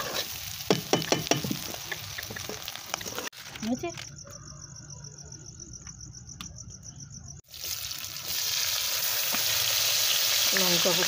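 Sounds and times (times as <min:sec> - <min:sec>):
onion sizzling in hot oil: 0:00.0 - 0:03.3, 0:07.4 - 0:11.0
crickets chirping: 0:00.7 - 0:11.0.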